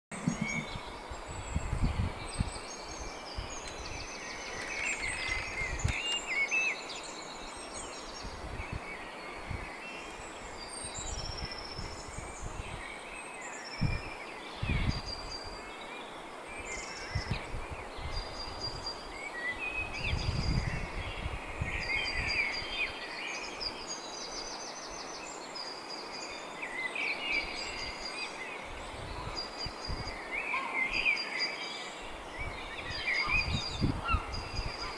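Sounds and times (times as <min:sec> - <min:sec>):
thumps on the microphone: 0:00.1 - 0:00.8
songbirds singing and chirping: 0:00.1 - 0:34.9.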